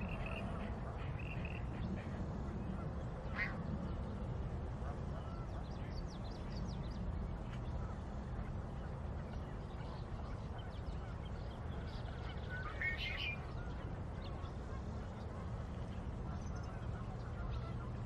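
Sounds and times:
bird calls and chirps: 0:00.0 - 0:02.0, 0:09.3 - 0:18.0
steady low rumble: 0:00.0 - 0:18.0.

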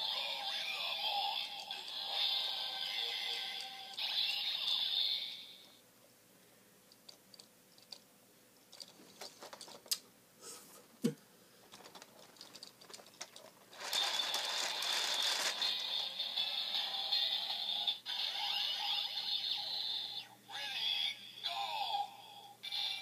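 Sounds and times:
electronic toy music: 0:00.0 - 0:05.7, 0:14.0 - 0:20.3, 0:22.6 - 0:23.0
toy electronic sound effects: 0:00.0 - 0:05.7, 0:14.0 - 0:22.0, 0:22.6 - 0:23.0.

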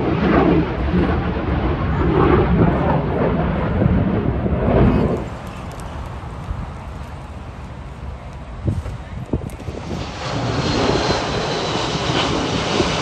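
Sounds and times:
fighter jet engine: 0:00.0 - 0:13.0.

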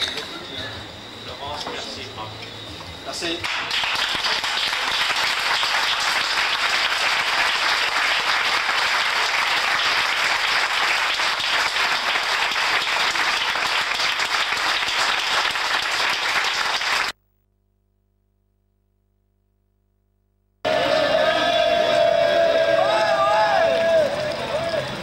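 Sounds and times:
crowd applauding: 0:03.4 - 0:17.2, 0:20.7 - 0:25.0.

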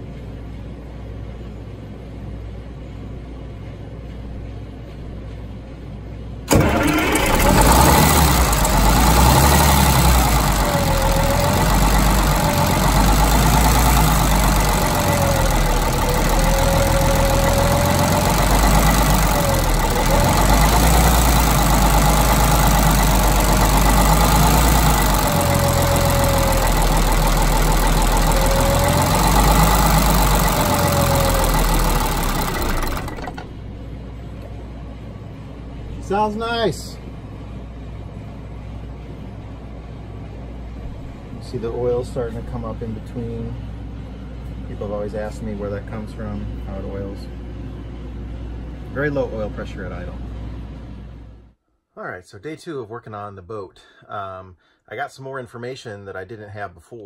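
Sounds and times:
diesel engine idling: 0:06.5 - 0:33.8
engine whine wavering in pitch: 0:06.5 - 0:34.9.

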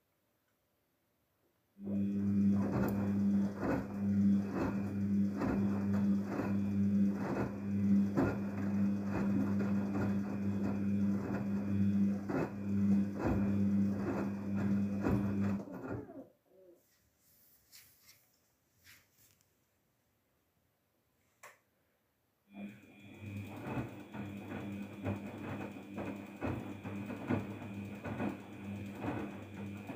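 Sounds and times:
washing machine motor humming: 0:01.8 - 0:16.4, 0:22.5 - 0:29.9.

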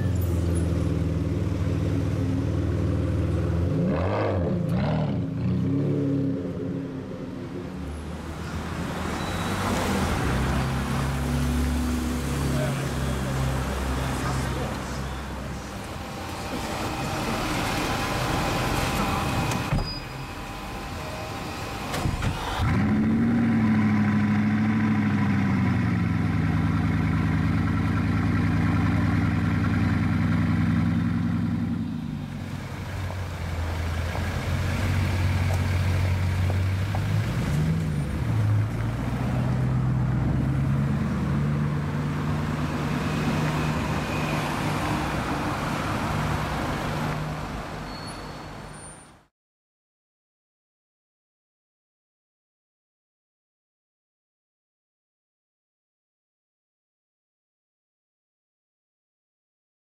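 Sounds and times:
engine revving: 0:03.2 - 0:06.5, 0:20.8 - 0:31.8
car engine starting and idling: 0:14.3 - 0:39.1.

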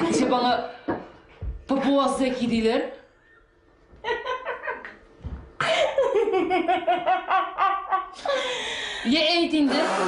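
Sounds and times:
woman laughing: 0:04.0 - 0:05.0, 0:05.6 - 0:08.8.

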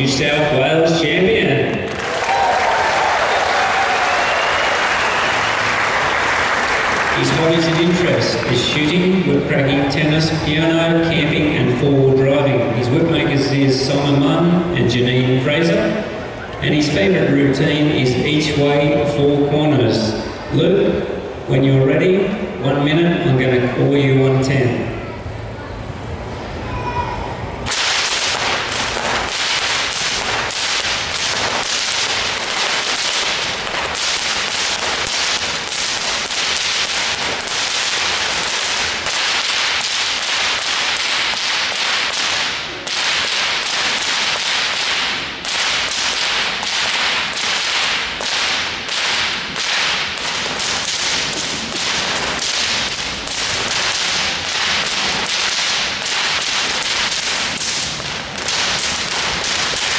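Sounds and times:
whips cracking: 0:07.1 - 0:11.3, 0:27.6 - 0:59.9.

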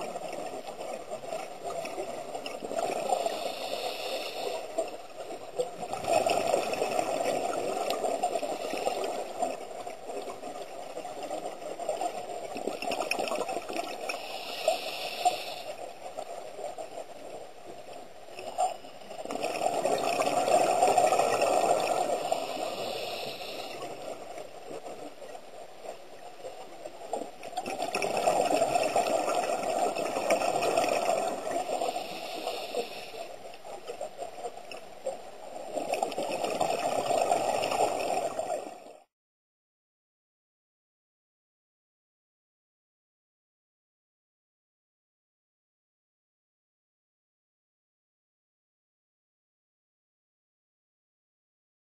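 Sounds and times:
soft hissing: 0:02.2 - 0:05.6, 0:08.0 - 0:10.9, 0:13.9 - 0:19.2, 0:20.7 - 0:28.2, 0:31.0 - 0:34.2
underwater regulator bubbles: 0:18.4 - 0:25.1, 0:27.1 - 0:33.1.

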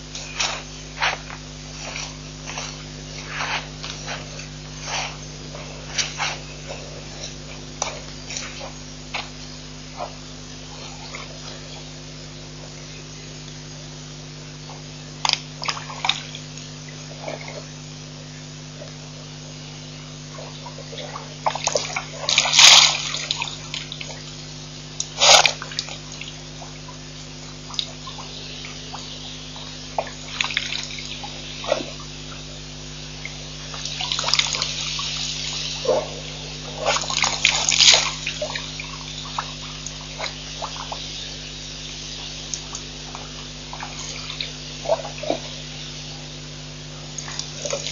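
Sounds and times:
low electrical hum: 0:00.0 - 0:47.9
elephant splashing water: 0:20.4 - 0:24.4, 0:25.1 - 0:41.5, 0:42.2 - 0:46.1.

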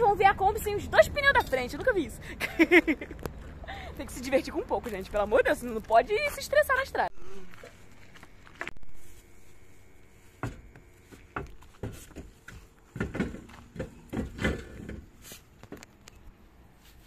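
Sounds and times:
wheel knocking and clunking: 0:10.4 - 0:15.8.

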